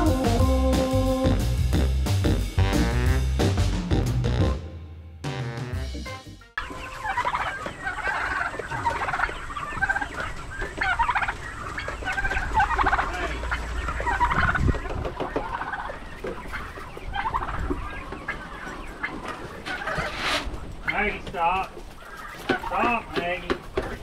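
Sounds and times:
chickens clucking: 6.6 - 24.0
turkeys gobbling: 6.6 - 24.0.

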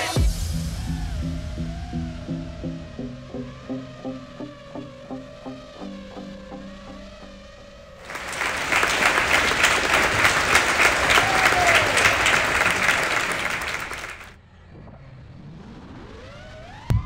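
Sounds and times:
crowd applauding: 8.0 - 14.4.

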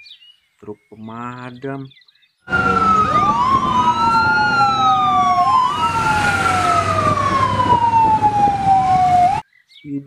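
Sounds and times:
fire truck sirens wailing: 2.5 - 9.4
vehicle engine noise: 2.5 - 9.4.

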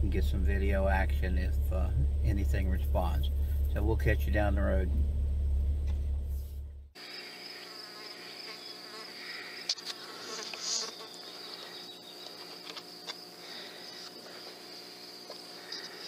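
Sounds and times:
low hum: 0.0 - 7.0
insects droning: 7.0 - 16.0.

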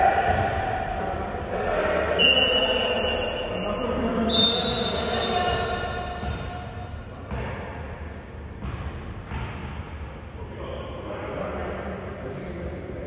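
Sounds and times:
ball bouncing: 5.5 - 7.7, 8.6 - 9.8.

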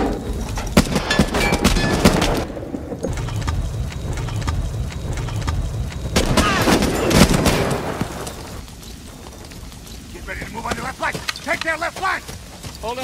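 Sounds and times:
gunshots: 0.8 - 8.2.

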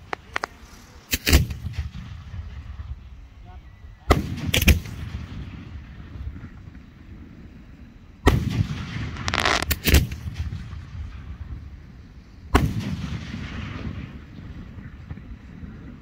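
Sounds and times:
fireworks shells booming: 8.2 - 11.9, 12.5 - 16.0.

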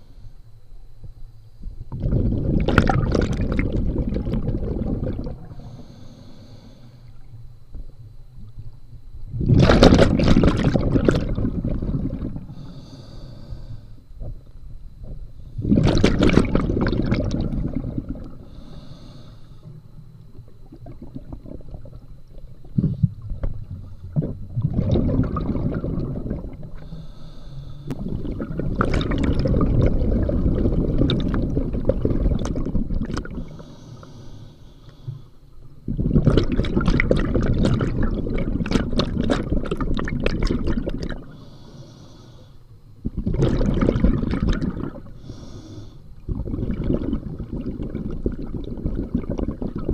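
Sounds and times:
bubbling exhales underwater: 1.8 - 7.3, 9.3 - 12.8, 15.0 - 33.7, 35.8 - 41.6, 43.0 - 45.5, 46.2 - 49.9
hissing regulator inhales: 5.5 - 7.3, 12.5 - 14.0, 18.4 - 19.8, 26.8 - 28.0, 33.3 - 35.5, 41.3 - 42.8, 45.0 - 46.2.

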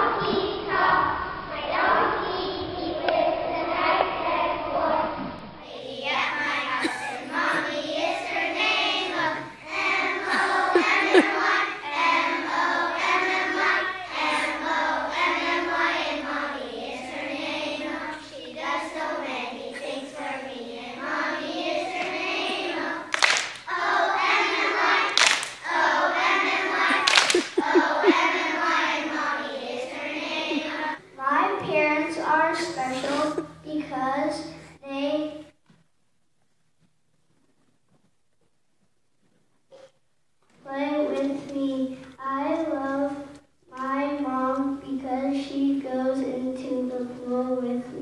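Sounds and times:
children singing in unison: 0.0 - 31.0.

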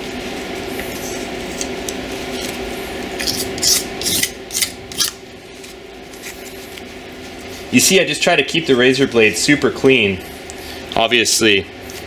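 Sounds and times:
razor blade scraping metal: 3.2 - 5.2.

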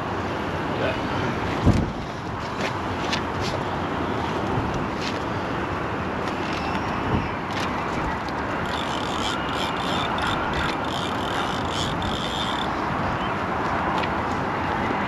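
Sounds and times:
wind noise on microphone: 1.4 - 3.6, 6.0 - 15.0
fishing reel clicking: 8.6 - 12.8.

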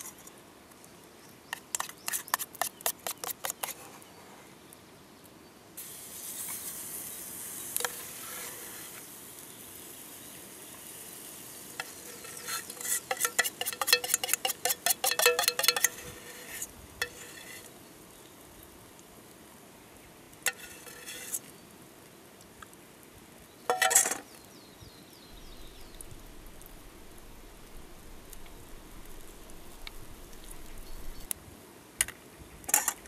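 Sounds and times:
batter sizzling in frying pan: 5.8 - 18.7, 25.2 - 31.4
metal spoon clinking in pot: 13.0 - 16.0.

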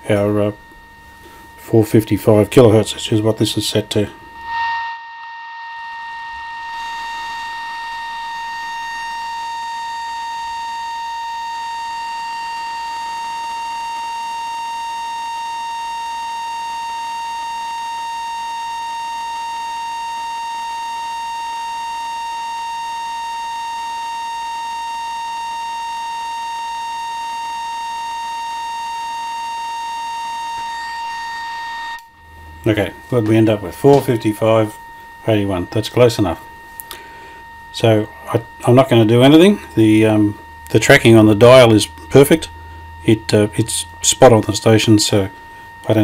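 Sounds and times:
high test tone from radio loudspeaker: 0.0 - 46.0.

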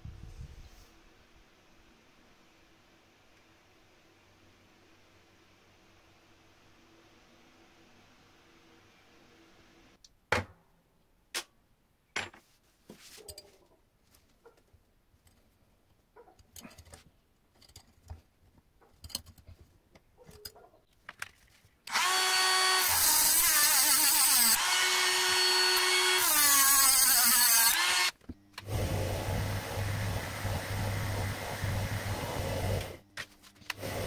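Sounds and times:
clicks and knocks of metal: 16.2 - 21.4
rotary tool cutting steel rod: 21.9 - 28.1.

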